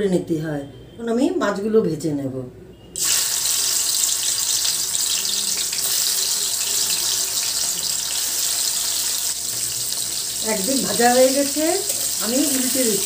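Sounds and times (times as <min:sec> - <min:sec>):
fish sizzling in hot oil: 0:03.0 - 0:13.0.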